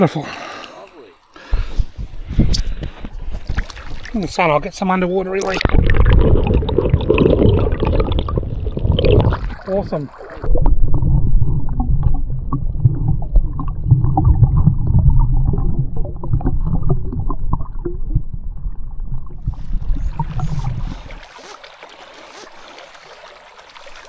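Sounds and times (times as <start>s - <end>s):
soft stream hiss: 0.0s - 10.5s, 19.4s - 24.0s
underwater stream rumble and gurgle: 5.4s - 22.0s.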